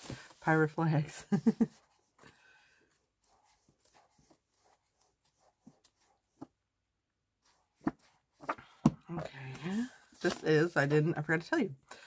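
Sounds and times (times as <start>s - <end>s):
book pages turning: 7.4s - 10.7s.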